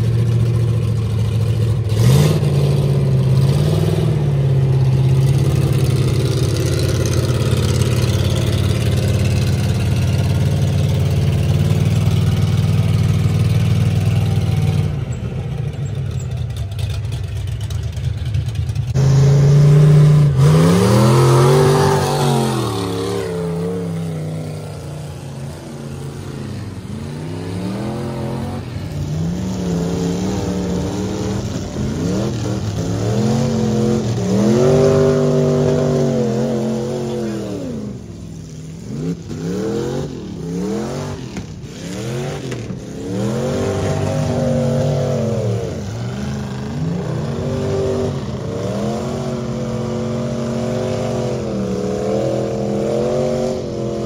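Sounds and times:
truck engine revving: 0.0s - 54.0s.

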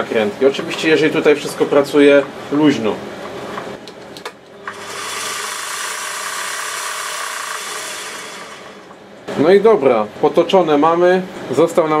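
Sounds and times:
lathe motor whirring: 4.6s - 9.0s.

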